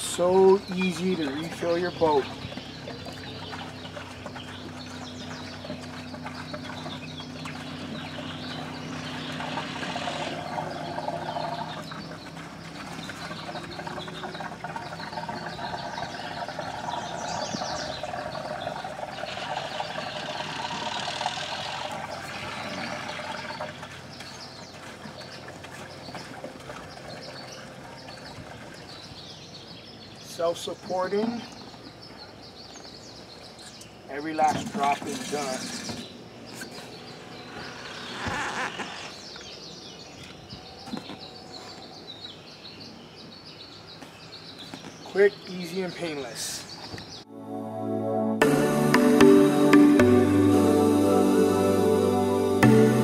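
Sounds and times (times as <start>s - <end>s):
fuel rushing and gurgling through hose: 0.0s - 29.2s, 34.4s - 36.2s.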